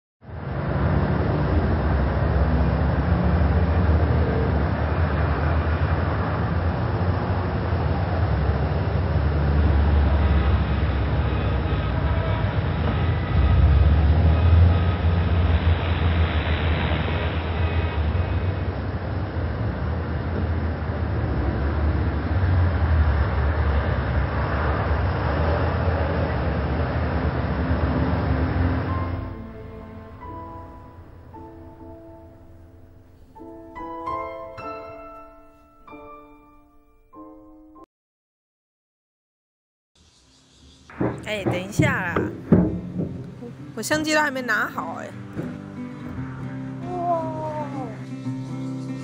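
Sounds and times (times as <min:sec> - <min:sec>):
bus engine close by: 0:00.2 - 0:34.6, 0:44.7 - 0:49.0
heavy traffic rumble: 0:00.2 - 0:34.9, 0:40.8 - 0:49.0.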